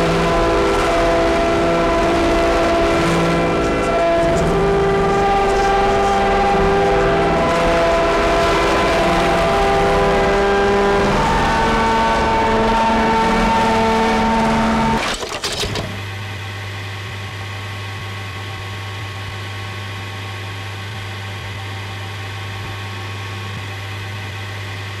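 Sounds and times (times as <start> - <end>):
synthesizer drone music: 0.0 - 15.0.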